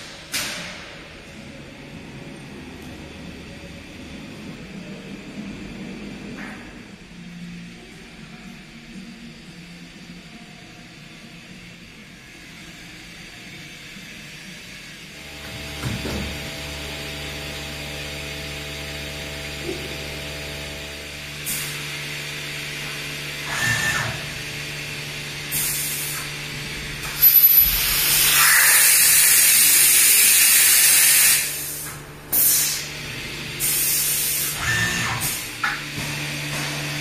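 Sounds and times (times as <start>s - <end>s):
milling machine electrical hum: 0.9s - 37.0s
compressed air hissing: 25.5s - 26.4s, 27.0s - 33.0s, 33.6s - 35.5s.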